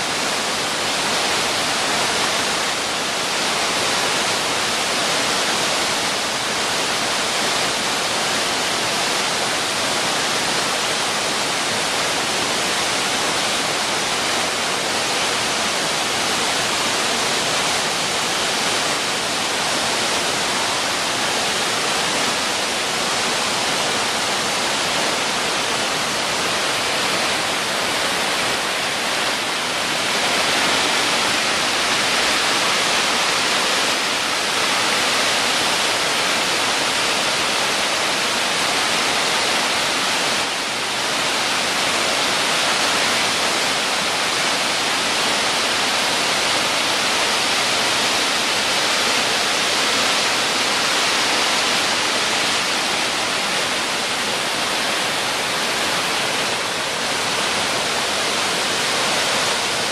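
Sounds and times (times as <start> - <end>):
waterfall rushing over rocks: 0.0 - 59.9.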